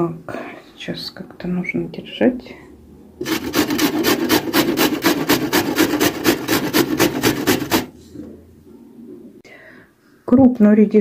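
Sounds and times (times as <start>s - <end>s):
radish grated on metal grater: 3.2s - 7.9s.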